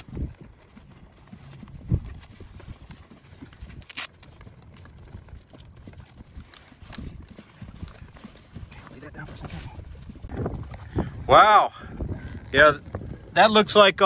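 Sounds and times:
straps and buckles clicking: 0:00.0 - 0:10.8
wind buffeting microphone: 0:00.0 - 0:14.0.

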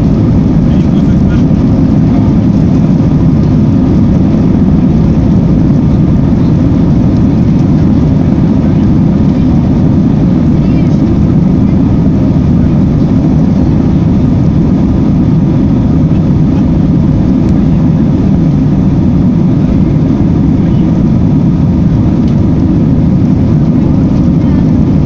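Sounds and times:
jet engines rumbling in cabin: 0:00.0 - 0:25.0.

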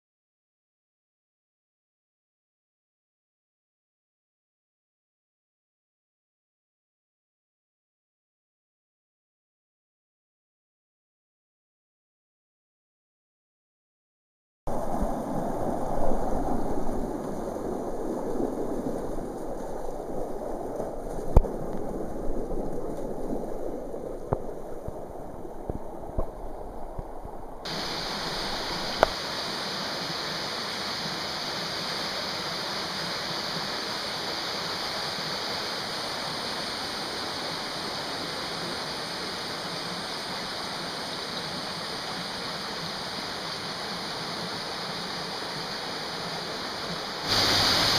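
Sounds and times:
stream and waterfall rushing: 0:25.4 - 0:47.9.

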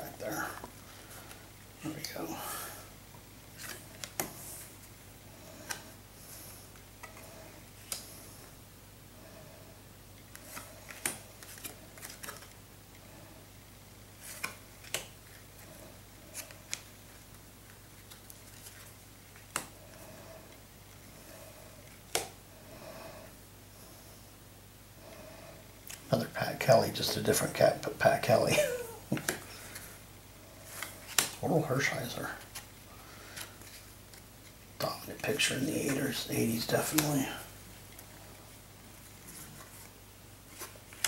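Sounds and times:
cards snapping while shuffled: 0:10.3 - 0:12.6, 0:14.2 - 0:15.4, 0:17.6 - 0:19.8, 0:22.0 - 0:22.4, 0:30.8 - 0:31.4.

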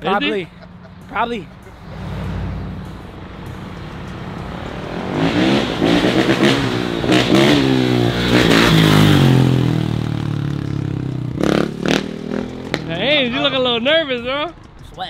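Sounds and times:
dirt bike engine revving: 0:01.9 - 0:13.5.

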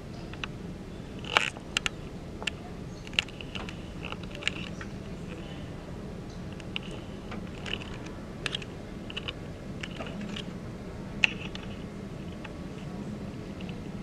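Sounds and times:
steady low hum: 0:00.0 - 0:14.0
light clicks and taps: 0:01.2 - 0:05.6.

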